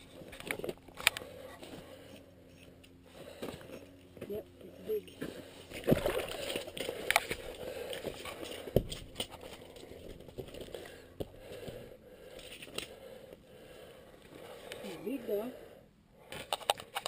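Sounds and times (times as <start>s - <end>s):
scraping and crackling: 5.1s - 11.6s.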